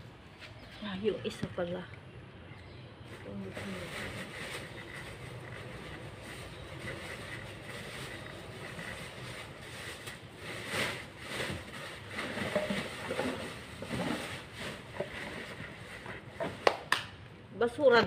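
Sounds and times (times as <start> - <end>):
background hum: 0.0 - 18.0
rummaging rustling and knocks: 6.4 - 16.6.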